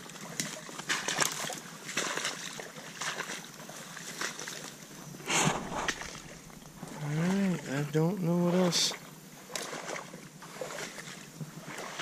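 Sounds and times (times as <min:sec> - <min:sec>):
footsteps sloshing through water: 0:00.0 - 0:12.0
splash: 0:00.0 - 0:12.0
pushing through brush: 0:05.2 - 0:07.0.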